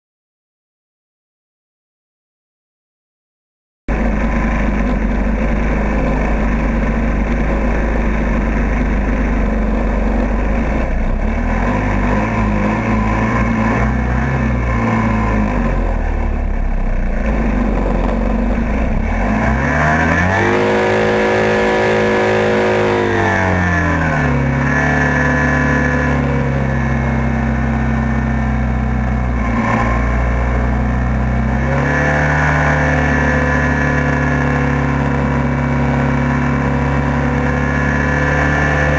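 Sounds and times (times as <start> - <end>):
hovercraft engine and fan: 3.9 - 31.7.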